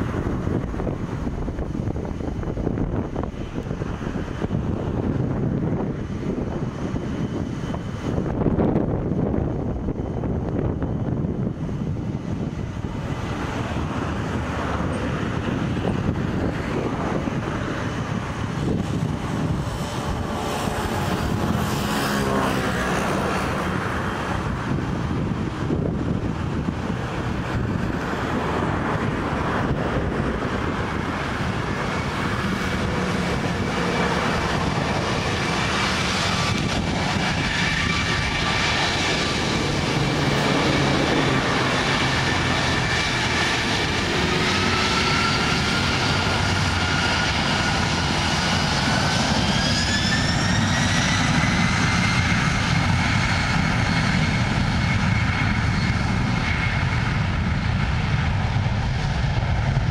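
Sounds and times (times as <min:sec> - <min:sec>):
jet engines spooling up: 0:00.0 - 0:59.9.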